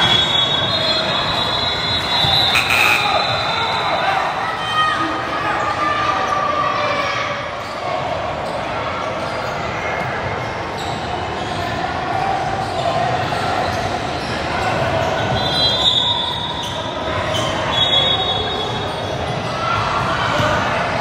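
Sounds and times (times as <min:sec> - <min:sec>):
high-pitched squeals: 0:00.0 - 0:03.9
murmur of players and spectators: 0:00.0 - 0:21.0.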